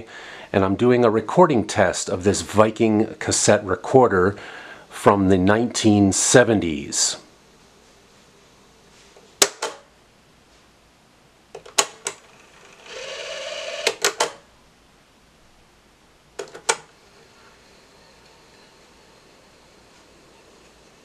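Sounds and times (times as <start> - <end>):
tape whirring: 12.1 - 14.4, 16.8 - 21.0.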